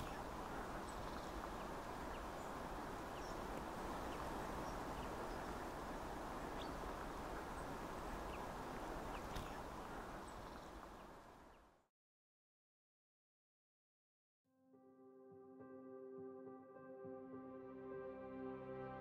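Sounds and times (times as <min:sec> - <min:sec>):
faint bird chirps: 0:00.0 - 0:03.4, 0:09.1 - 0:11.7
rushing outdoor ambient noise: 0:00.0 - 0:11.9.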